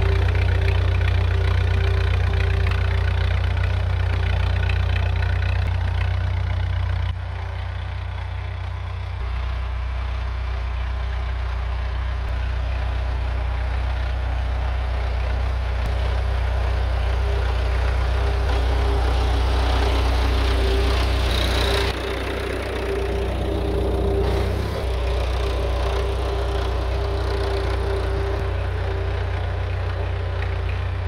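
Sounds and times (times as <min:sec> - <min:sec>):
tractor engine running: 0:00.0 - 0:31.0
high steady whine: 0:15.9 - 0:31.0.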